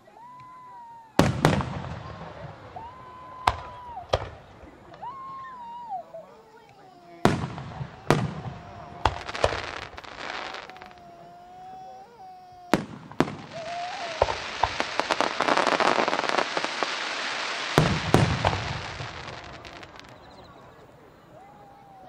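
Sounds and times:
crackling of small pops: 6.6s - 11.0s, 12.8s - 20.3s
firework shells bursting: 6.7s - 11.3s, 12.7s - 20.4s
thin wavering whistle: 8.7s - 16.4s.

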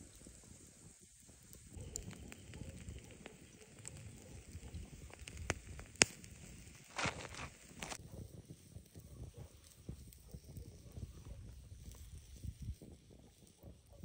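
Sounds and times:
wood fire crackling: 0.0s - 14.0s
sharp pops: 1.7s - 8.0s.

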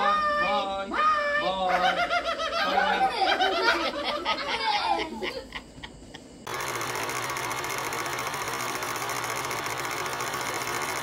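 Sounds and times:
film projector clattering: 6.5s - 11.0s.

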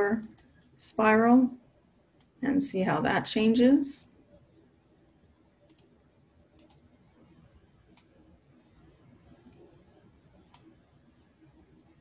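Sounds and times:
computer mouse clicks: 0.1s - 0.6s, 2.2s - 2.4s, 5.6s - 7.0s, 7.9s - 8.2s, 9.3s - 9.8s, 10.4s - 10.8s.

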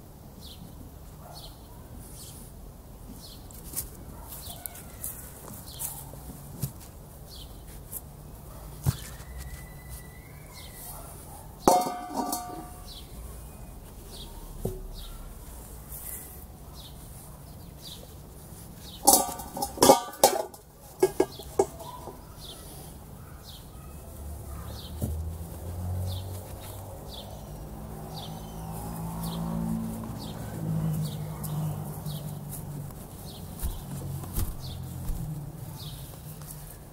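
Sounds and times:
faint bird chirping: 8.3s - 11.6s, 12.5s - 19.1s, 21.3s - 25.0s
metal pot clattering in bowl: 11.7s - 12.8s, 19.0s - 21.9s
steel bowl clanging on stone: 11.7s - 12.9s, 19.0s - 22.1s.

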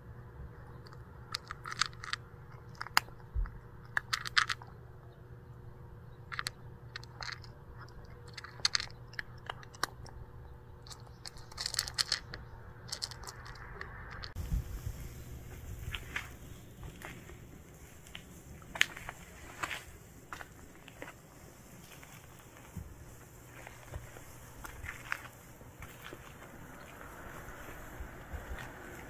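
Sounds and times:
cat crunching dry kibble: 0.8s - 4.8s, 6.2s - 10.2s, 10.8s - 14.4s.

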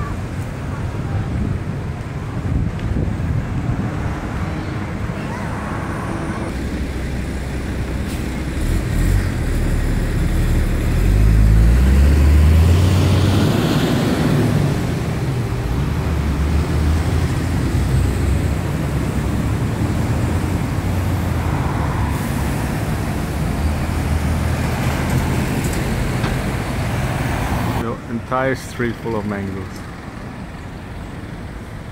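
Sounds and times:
traffic rumble: 0.0s - 31.9s
vehicle engine speeding up: 5.3s - 6.7s, 8.6s - 27.8s.

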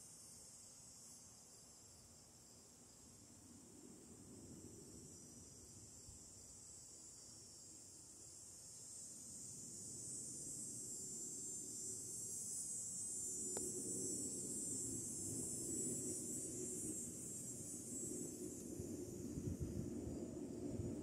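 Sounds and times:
high-pitched insect chorus: 0.0s - 21.0s
faint click: 13.5s - 13.7s.

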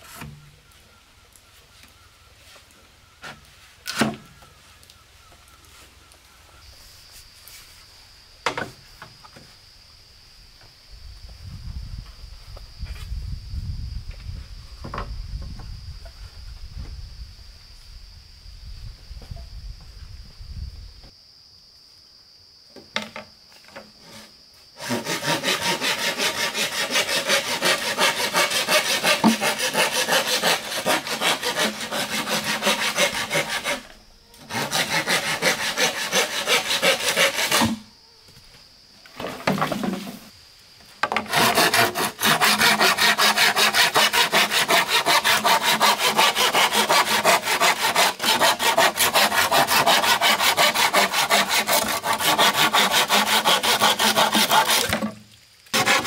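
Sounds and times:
hand saw cutting wood: 24.0s - 37.8s, 41.1s - 55.1s, 55.8s - 56.0s.

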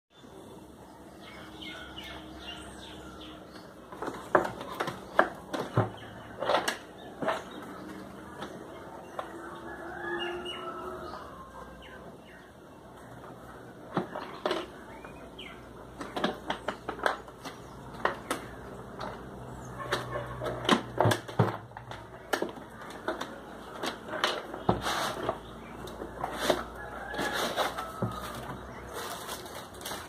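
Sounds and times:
plastic case scraping out of box: 22.8s - 30.0s.

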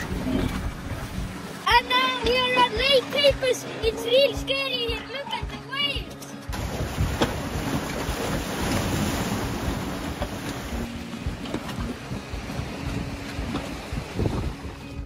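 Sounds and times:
waves splashing against pier: 0.0s - 15.0s
wind buffeting microphone: 6.5s - 15.0s.

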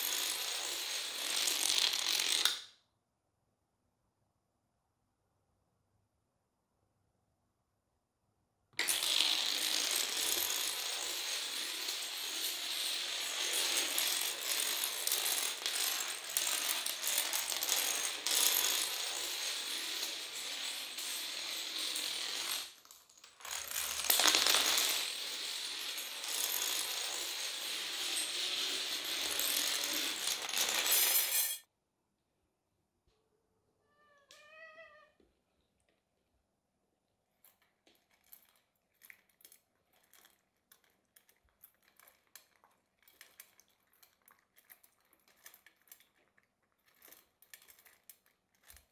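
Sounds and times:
dominoes toppling clatter: 0.0s - 2.7s, 8.8s - 31.7s, 37.4s - 48.9s.

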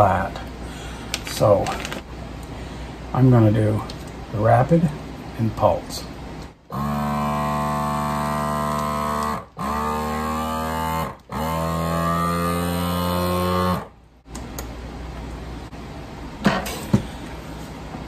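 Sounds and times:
vacuum sealer pump humming: 6.7s - 14.6s.

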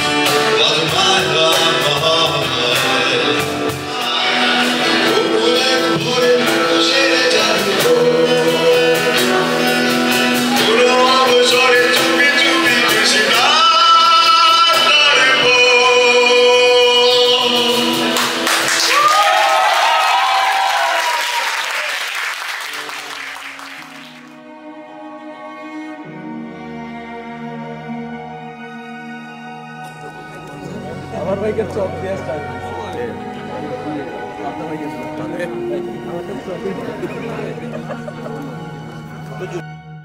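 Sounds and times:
man singing into a microphone: 0.0s - 18.2s.

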